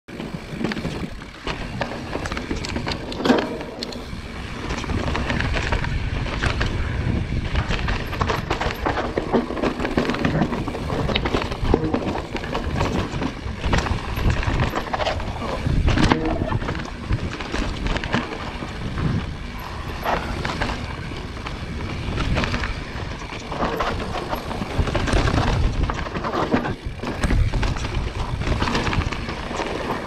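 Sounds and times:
bike rattling and clacking: 0.1 - 30.0
tyres rumbling over ground: 0.1 - 30.0.

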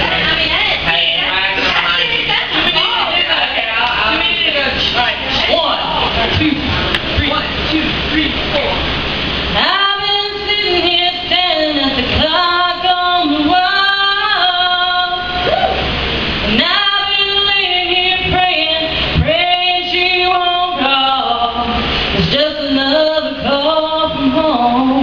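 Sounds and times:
woman singing a cappella: 9.6 - 15.5, 16.5 - 25.0.

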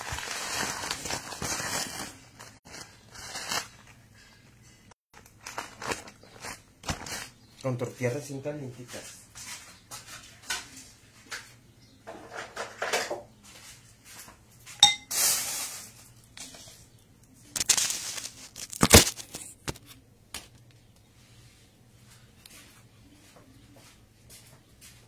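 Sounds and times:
plates clinking and knocking: 14.8 - 15.1.

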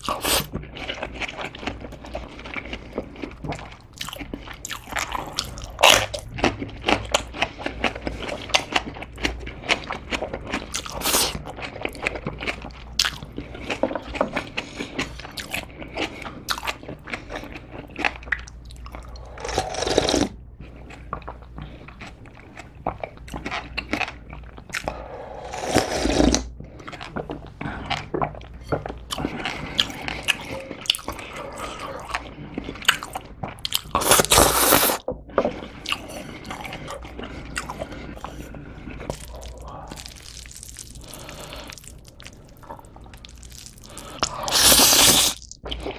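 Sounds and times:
crunchy wet chewing: 0.0 - 45.9
slurping noodles: 19.2 - 20.3, 24.9 - 26.5, 33.9 - 42.8, 43.6 - 45.9
slurping broth from a bowl: 25.3 - 26.5, 34.0 - 35.7, 44.2 - 45.4.

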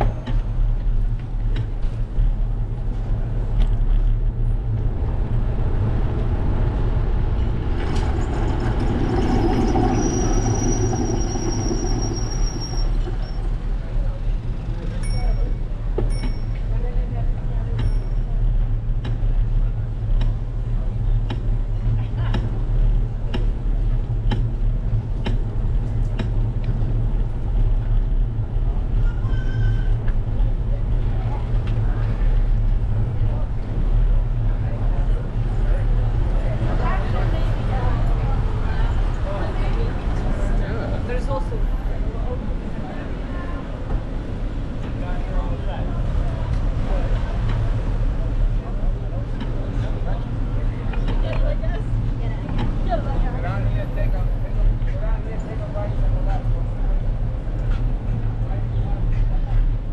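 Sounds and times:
wind rumble on microphone: 0.0 - 14.7
road vibration rumble: 0.0 - 59.9
street traffic noise: 0.0 - 59.9
thin high whine: 9.1 - 13.5.

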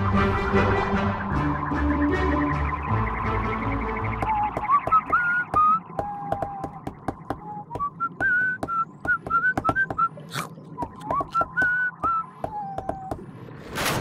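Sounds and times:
person whistling a tune: 4.2 - 10.1, 10.8 - 13.1.

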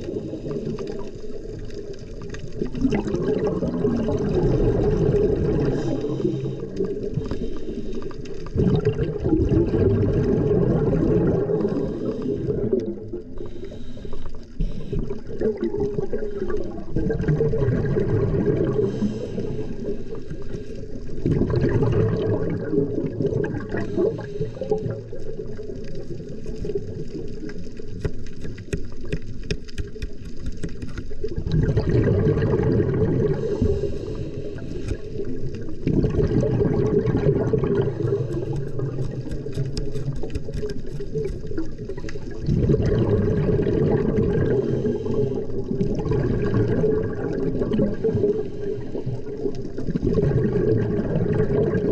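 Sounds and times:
underwater air bubbles gurgling: 0.0 - 51.9
faint clicking: 33.9 - 35.7.

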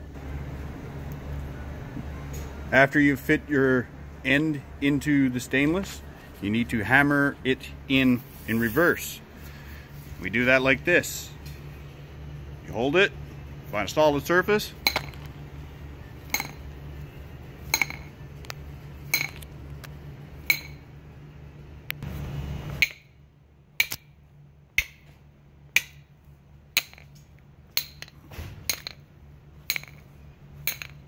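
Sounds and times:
low hum: 0.0 - 31.0
metal pipe clinking on concrete: 14.8 - 15.3, 16.3 - 16.6, 17.7 - 18.2, 19.1 - 19.4, 20.5 - 20.8, 26.8 - 27.2, 27.8 - 29.1, 29.7 - 31.0.

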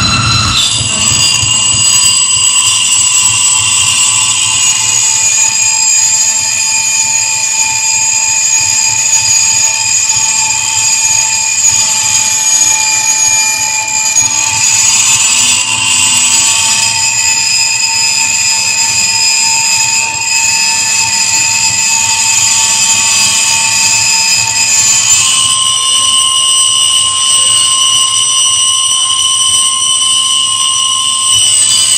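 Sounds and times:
high-pitched electronic tones: 0.0 - 4.4.

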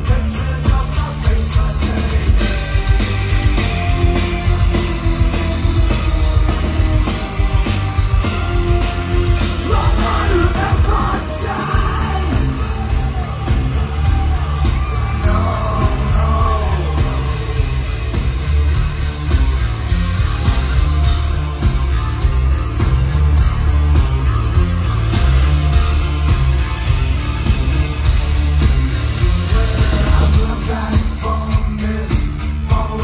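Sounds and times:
live band playing loudly: 0.0 - 33.0
singer yelling vocals: 9.5 - 17.9.

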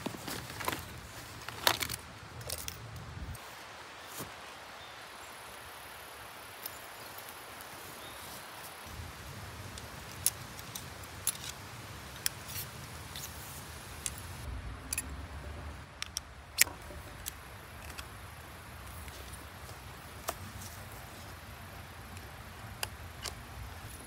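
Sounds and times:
outdoor hiss: 0.0 - 24.0
low rumble: 14.4 - 16.0.

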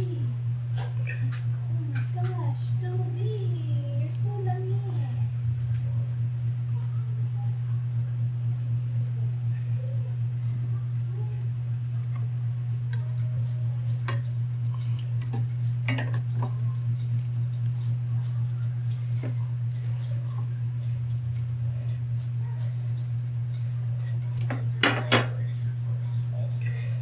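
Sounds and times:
low pulsing hum: 0.0 - 27.0.

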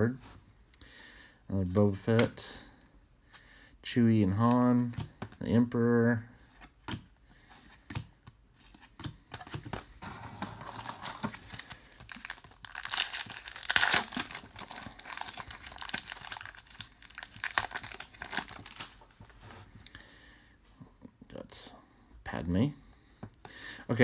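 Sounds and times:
wrapper crinkling and tearing: 10.6 - 19.1.

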